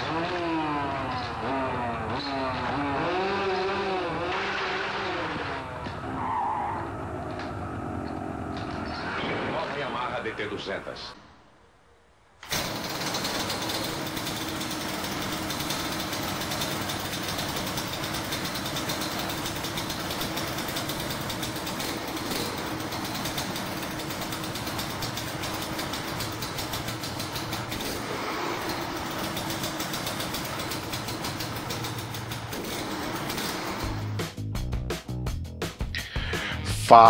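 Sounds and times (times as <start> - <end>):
two-stroke engine idling: 12.4 - 34.4.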